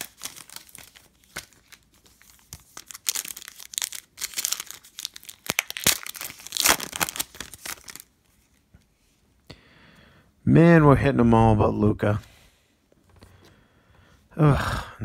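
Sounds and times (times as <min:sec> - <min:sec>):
foil wrapper crinkling and tearing: 0:00.0 - 0:08.1.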